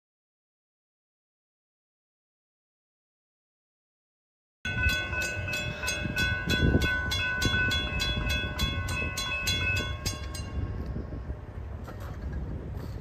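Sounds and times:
railroad crossing bell ringing: 4.7 - 11.5.

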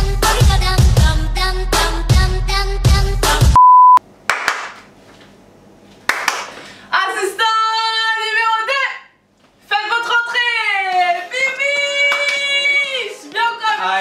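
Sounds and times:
high beep: 3.6 - 4.0.

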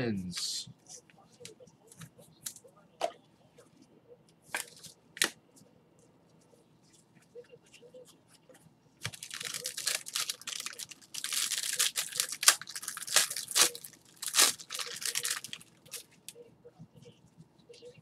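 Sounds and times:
foil wrapper tearing and crinkling: 9.0 - 16.0.

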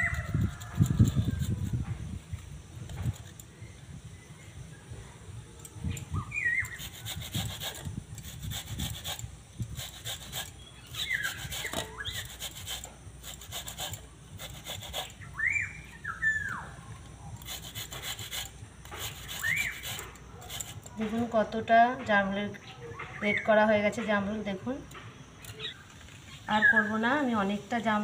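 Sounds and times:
fruit rasping on metal grater: 0.0 - 2.0, 6.6 - 15.3, 17.3 - 21.3.

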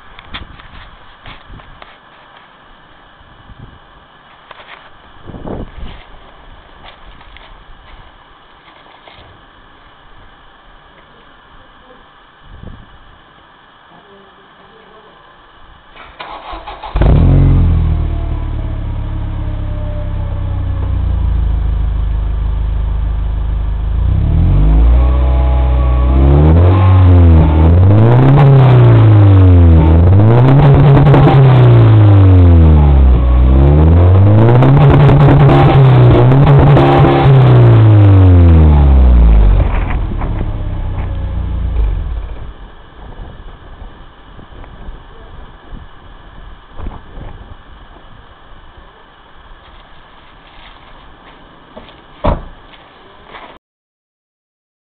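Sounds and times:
car engine starting and revving: 16.2 - 42.8.

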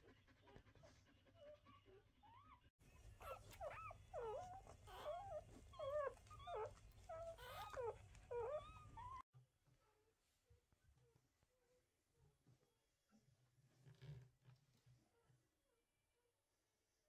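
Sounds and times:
puppies squeaking and whimpering: 1.4 - 9.3.

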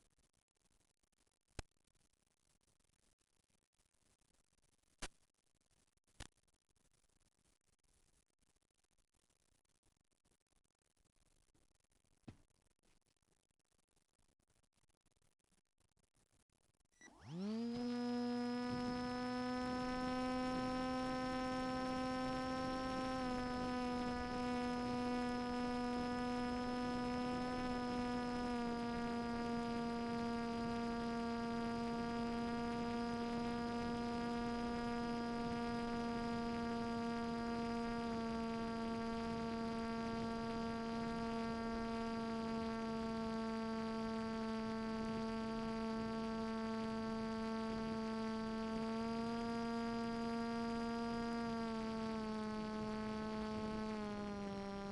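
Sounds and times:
electric motor propeller whine: 17.0 - 54.9.

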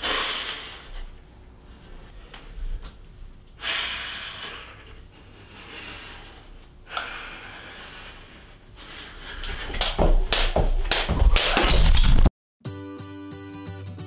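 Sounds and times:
heavy breathing: 0.0 - 10.4
feet landing: 9.3 - 12.3
jump rope slapping the floor: 9.4 - 12.3.

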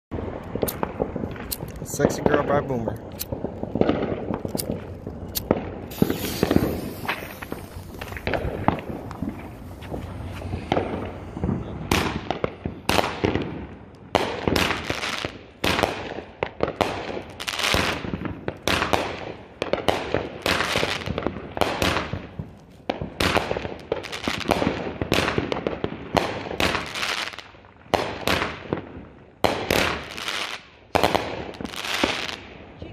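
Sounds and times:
firework cake shots crackling: 0.4 - 25.6
firework hiss: 3.0 - 13.2.

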